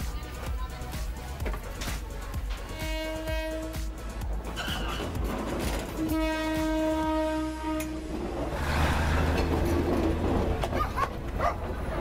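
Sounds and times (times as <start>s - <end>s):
train rumbling past: 1.3s - 12.0s
train horn: 2.7s - 4.1s, 5.9s - 8.3s.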